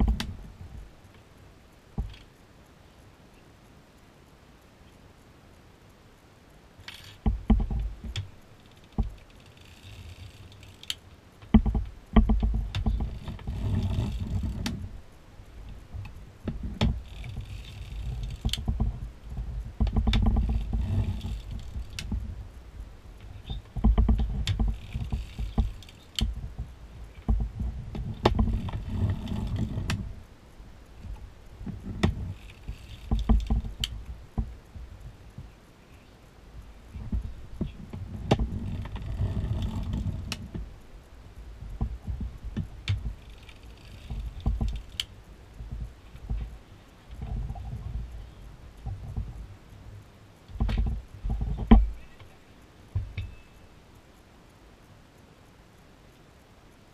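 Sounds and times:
metal needles clicking and rattling: 0:06.8 - 0:53.8
knitting machine rumbling: 0:06.9 - 0:35.5, 0:36.6 - 0:49.8.

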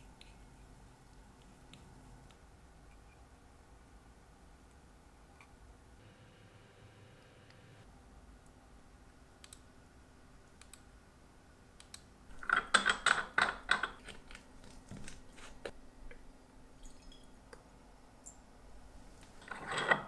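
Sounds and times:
tools and glass bottles clicking: 0:19.4 - 0:20.0.

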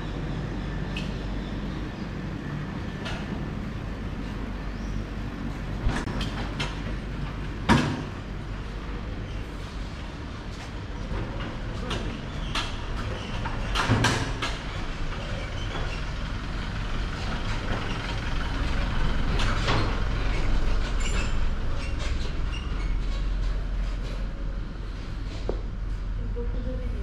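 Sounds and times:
sharp knocks and clatters: 0:05.8 - 0:08.2, 0:10.6 - 0:16.1
truck engine humming: 0:14.3 - 0:27.0.

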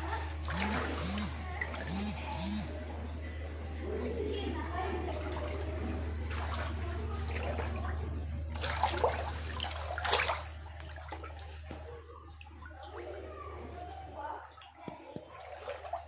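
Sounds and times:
steady low hum: 0:00.0 - 0:04.0
water sloshing from wading: 0:00.0 - 0:16.0.

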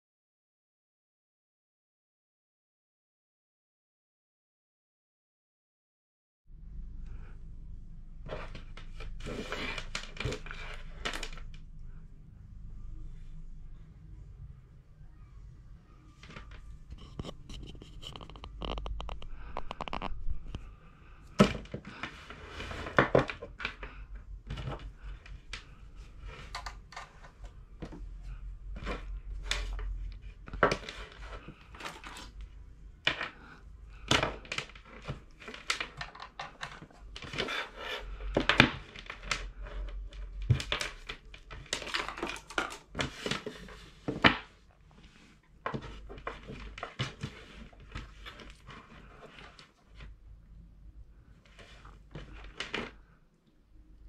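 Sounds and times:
wires and clips rattling on desk: 0:16.2 - 0:20.6, 0:34.0 - 0:44.4.

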